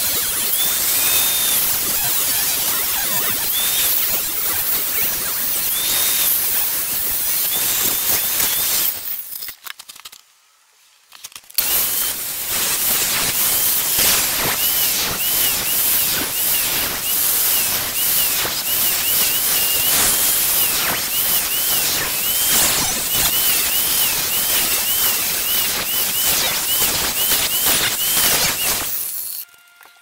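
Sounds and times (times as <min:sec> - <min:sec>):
angle grinder grinding wood: 0:00.0 - 0:09.4, 0:11.6 - 0:30.0
steady hiss: 0:11.6 - 0:29.4.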